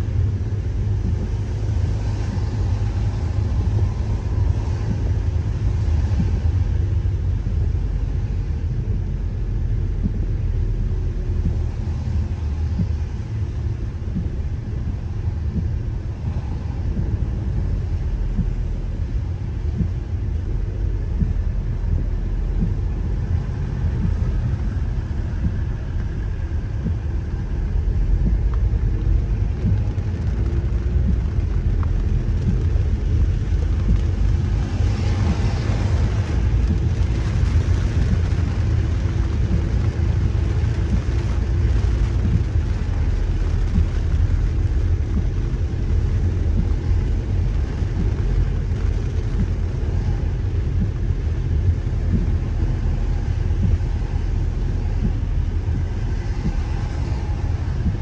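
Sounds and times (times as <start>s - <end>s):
car driving rumble: 0.0s - 58.0s
rain on car: 0.0s - 58.0s
tyres hissing on wet road: 0.0s - 58.0s.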